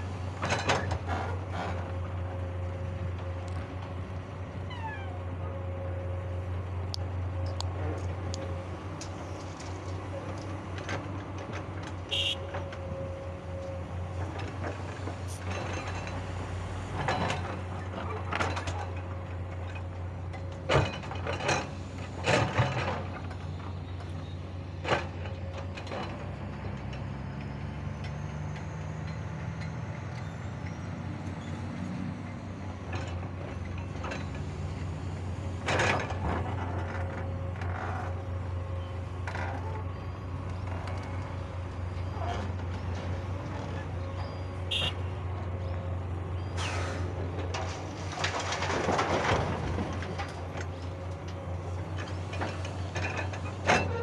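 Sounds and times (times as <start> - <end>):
excavator diesel engine running: 0.0 - 54.0
excavator bucket clanks and knocks: 17.0 - 23.4, 47.4 - 54.0.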